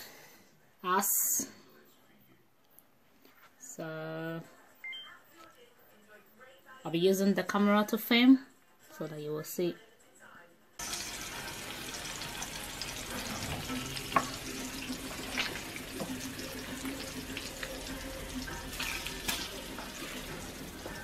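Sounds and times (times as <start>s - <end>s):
bacon and egg sizzling: 10.8s - 21.0s
hot fat crackling: 10.8s - 21.0s.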